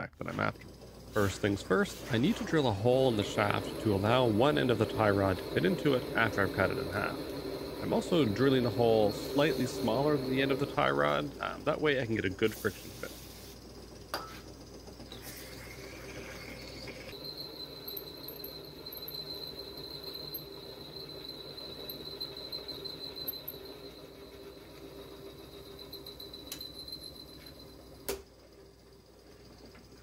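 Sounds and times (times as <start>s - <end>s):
drill press whining: 0.6s - 12.6s, 13.8s - 28.2s
spray can hiss: 12.5s - 13.6s.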